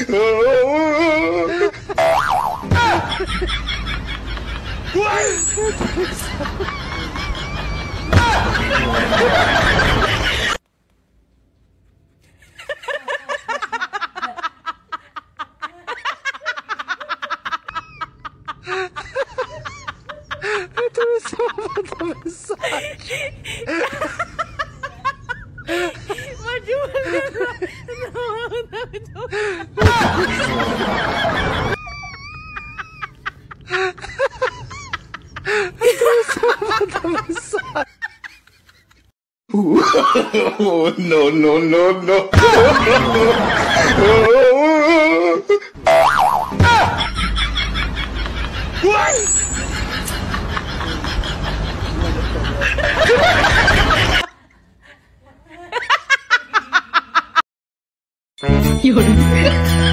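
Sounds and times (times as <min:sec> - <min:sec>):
laughter: 0:00.0 - 0:10.6, 0:12.3 - 0:45.8, 0:46.6 - 0:57.4
short squeaky cries: 0:05.1 - 0:05.8, 0:49.0 - 0:49.7.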